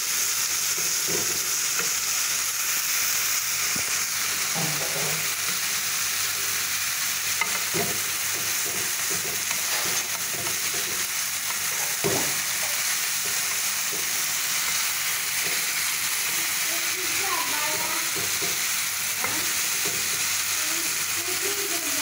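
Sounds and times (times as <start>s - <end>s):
vegetables sizzling in a pan: 0.0s - 22.0s
wooden spatula scraping a pan: 7.4s - 20.3s.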